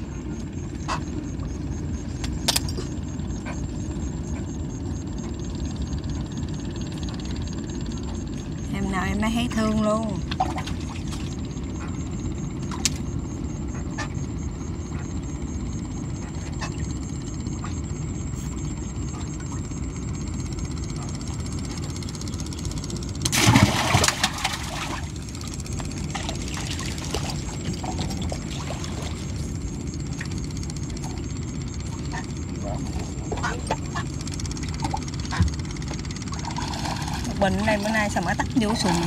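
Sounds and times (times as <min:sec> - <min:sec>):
loud water splash: 0:23.3 - 0:24.9.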